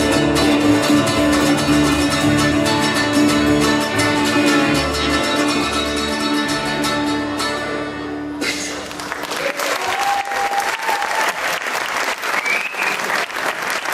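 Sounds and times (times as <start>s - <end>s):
audience applause: 8.7s - 13.9s.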